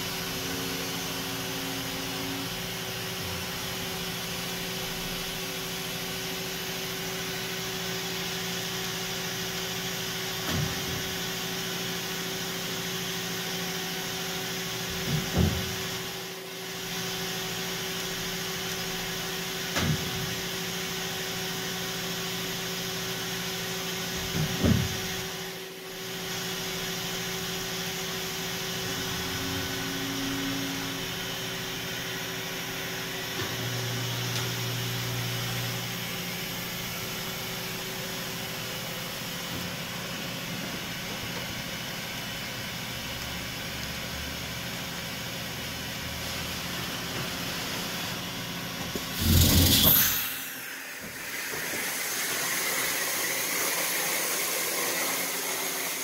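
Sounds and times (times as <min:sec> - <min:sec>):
machine hum: 0:48.9 - 0:54.6
loud burst of noise: 0:49.1 - 0:56.0.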